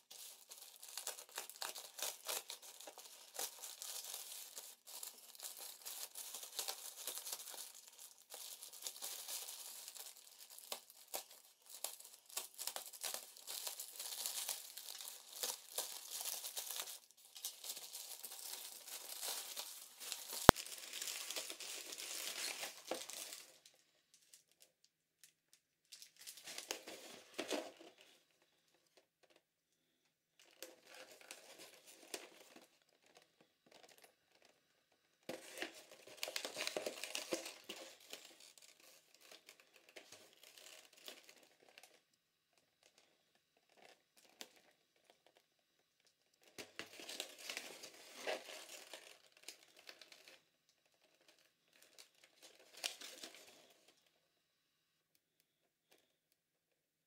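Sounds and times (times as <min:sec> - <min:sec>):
plastic wrapping crinkling and tearing: 0:00.0 - 0:24.6, 0:25.9 - 0:28.3, 0:30.4 - 0:34.6, 0:35.3 - 0:42.0, 0:46.4 - 0:54.0.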